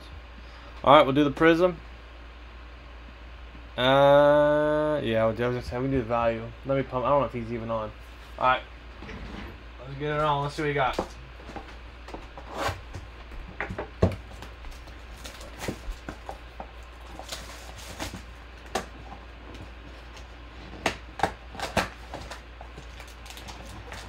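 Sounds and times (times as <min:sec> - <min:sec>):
plastic wrap crinkling: 0:14.2 - 0:24.0.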